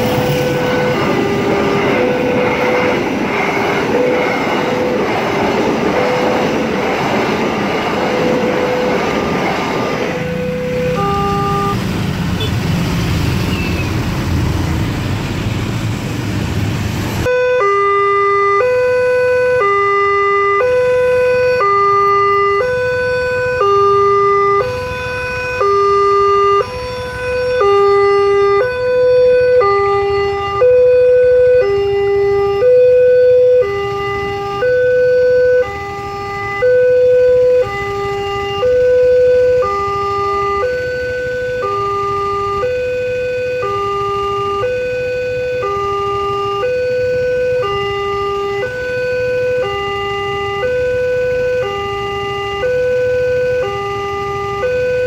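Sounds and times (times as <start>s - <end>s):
two-tone level crossing alarm: 0.0s - 11.8s, 17.2s - 55.0s
motorcycle traffic: 0.0s - 55.0s.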